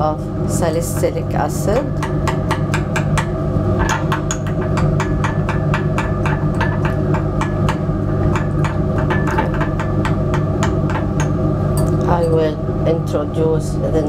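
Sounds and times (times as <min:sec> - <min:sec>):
fume hood fan hum: 0:00.0 - 0:14.0
metal spatula tapping glass beaker: 0:02.0 - 0:12.4.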